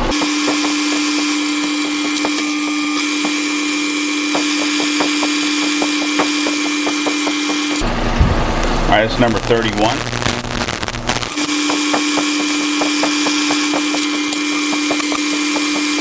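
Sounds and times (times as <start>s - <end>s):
metal lathe hum and whine: 0.0s - 8.1s, 11.3s - 16.0s.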